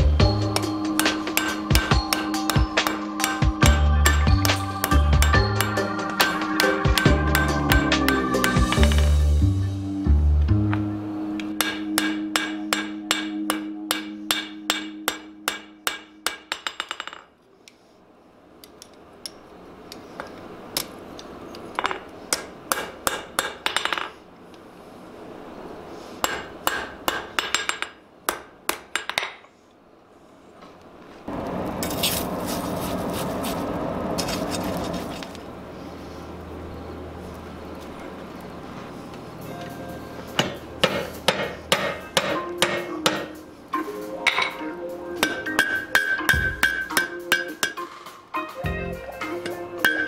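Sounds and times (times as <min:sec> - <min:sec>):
hammer ringing on anvil: 0:00.3 - 0:09.2, 0:11.4 - 0:17.2, 0:40.3 - 0:43.4, 0:45.2 - 0:47.9, 0:49.4 - 0:50.0.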